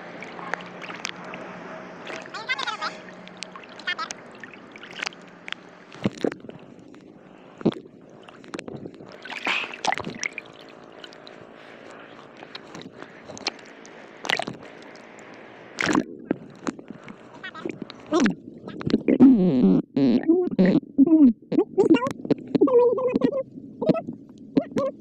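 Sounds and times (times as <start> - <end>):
splashes: 0.0 - 19.1
sea water sloshing and gurgling: 0.0 - 19.6.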